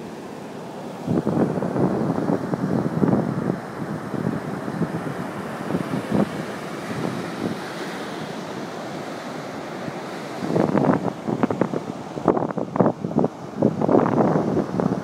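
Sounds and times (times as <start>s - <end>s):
ocean surf breaking: 0.0s - 15.0s
wind buffeting microphone: 1.0s - 7.9s, 10.2s - 15.0s.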